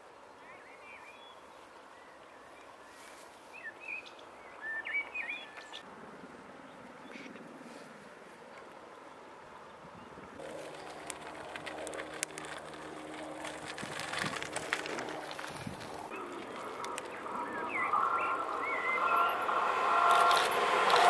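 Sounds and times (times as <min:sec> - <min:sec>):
bicycle rolling on dirt path: 0:10.3 - 0:21.0
passenger train whining: 0:10.4 - 0:21.0
bird chirps: 0:16.1 - 0:19.4.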